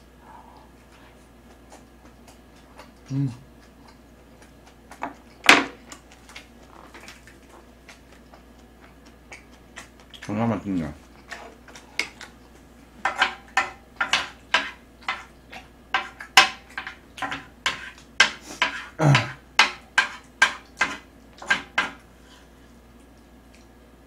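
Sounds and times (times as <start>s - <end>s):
low voice: 3.1s - 3.4s
chopsticks scraping metal tray: 16.8s - 19.3s.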